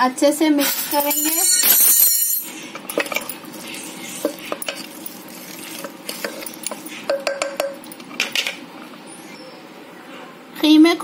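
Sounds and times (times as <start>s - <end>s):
spoon scraping metal pot: 2.3s - 7.9s.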